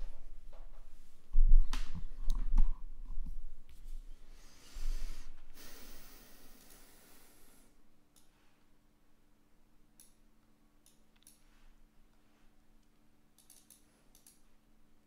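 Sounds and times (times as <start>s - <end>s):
low electrical hum: 0.0s - 15.0s
soft clicks: 10.0s - 11.5s, 12.8s - 14.5s.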